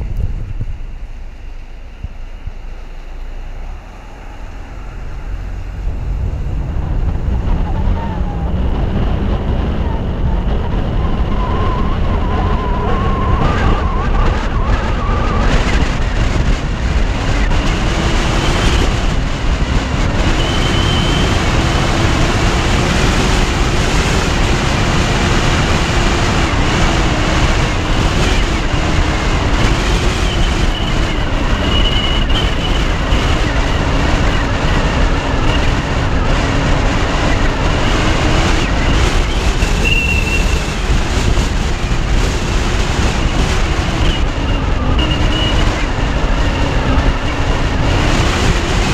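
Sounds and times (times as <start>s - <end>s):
road and wind noise: 0.0s - 48.9s.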